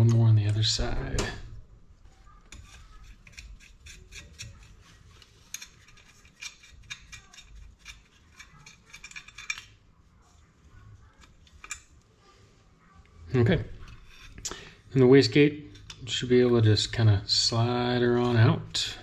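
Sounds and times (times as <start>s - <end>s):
small metallic clicks and scrapes: 2.3s - 12.1s, 13.8s - 14.7s, 15.7s - 16.2s.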